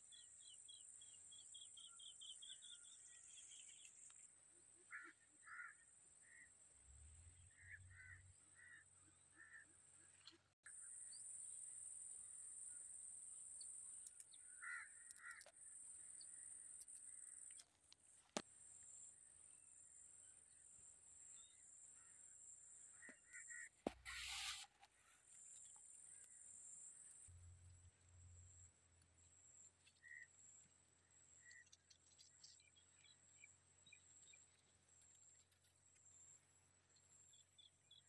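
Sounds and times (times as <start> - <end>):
short bird calls: 23.0 - 24.9.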